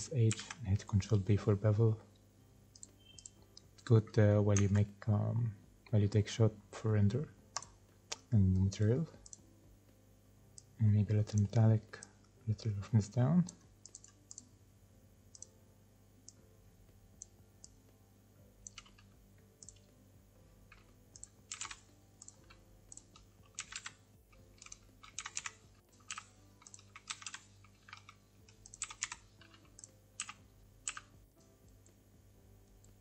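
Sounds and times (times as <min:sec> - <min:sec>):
computer keyboard keypresses: 0:00.3 - 0:00.6, 0:02.7 - 0:03.4, 0:18.6 - 0:19.9, 0:20.7 - 0:31.8
mouse clicks: 0:02.7 - 0:03.7, 0:15.3 - 0:15.5.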